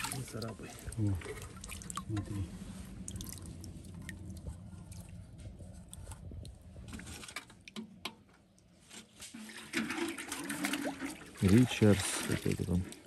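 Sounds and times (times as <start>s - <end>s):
running water: 0.0s - 6.1s, 9.2s - 13.0s.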